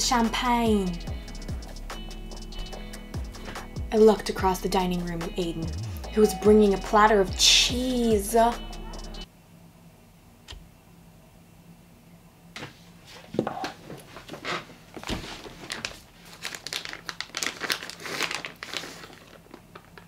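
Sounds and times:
plastic bag crinkling: 15.1s - 20.0s.

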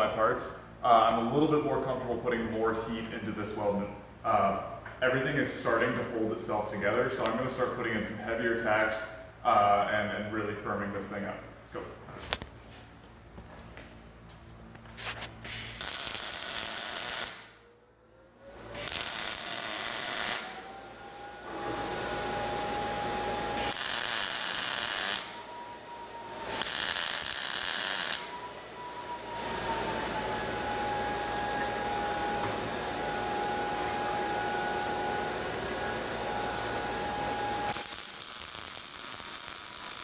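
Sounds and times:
welding arc bursts: 15.4s - 17.6s, 18.7s - 20.7s, 23.6s - 25.5s, 26.4s - 28.5s, 37.7s - 40.0s.

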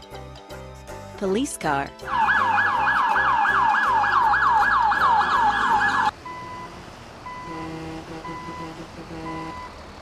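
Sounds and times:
police siren yelping: 2.1s - 6.2s.

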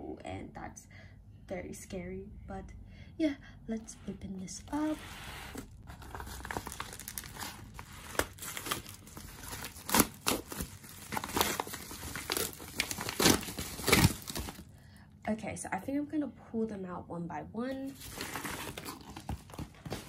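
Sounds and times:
paper mailer being torn open: 6.0s - 14.6s.

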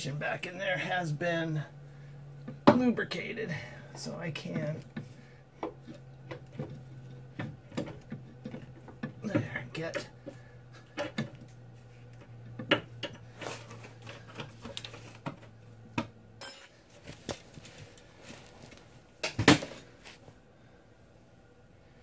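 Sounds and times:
metal parts and tools clinking: 16.4s - 18.0s.

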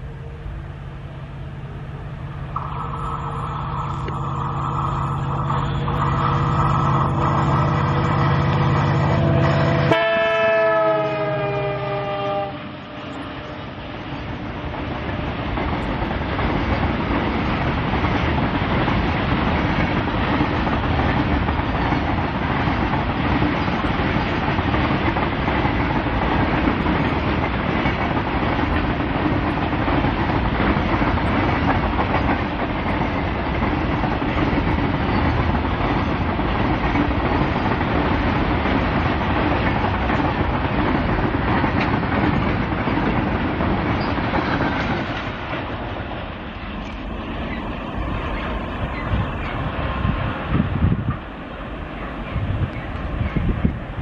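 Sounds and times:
train wheels clattering on rails: 13.2s - 54.0s.

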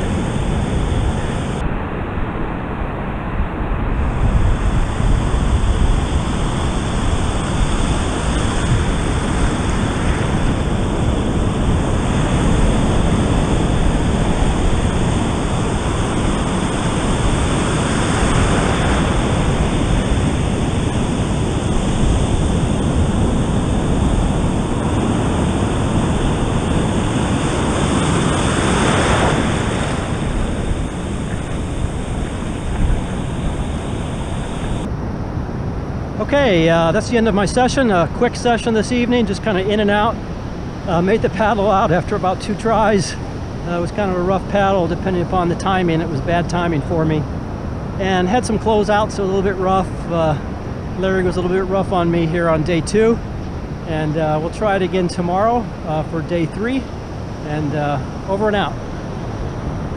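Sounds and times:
wind rumbling on microphone: 0.0s - 59.9s
whitewater rushing through shallows: 2.4s - 34.9s
surf breaking: 4.1s - 34.9s.

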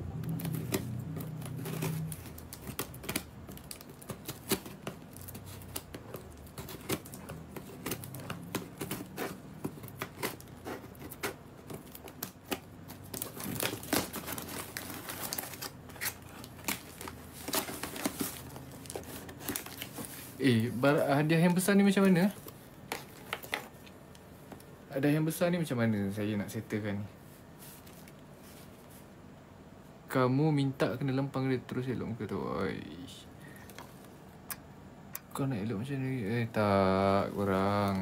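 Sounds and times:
scissors cutting cardboard: 0.2s - 15.4s.

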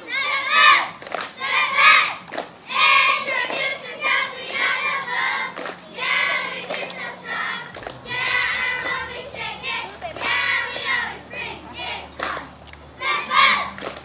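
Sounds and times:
girls chanting a cheer: 0.0s - 14.0s
sharp hand claps: 1.0s - 1.4s, 5.5s - 5.8s, 13.7s - 14.0s.

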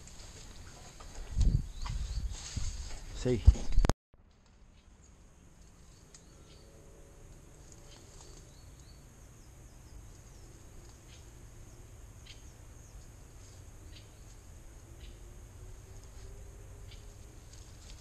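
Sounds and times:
bird chirps: 5.8s - 6.8s, 7.7s - 13.1s, 13.8s - 15.3s, 16.8s - 17.2s.

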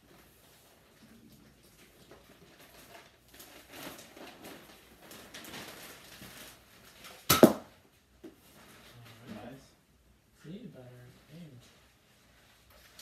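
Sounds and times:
dart blaster firing pop: 7.3s - 7.7s.

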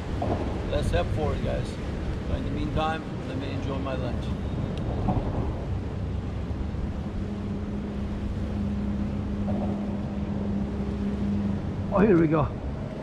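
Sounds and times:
engine rumbling: 0.0s - 13.0s
steady hum: 4.1s - 13.0s.

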